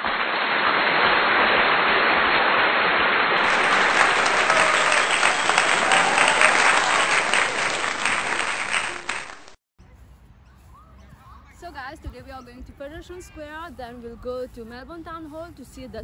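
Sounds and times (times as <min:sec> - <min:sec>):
crowd applauding: 0:03.4 - 0:09.6.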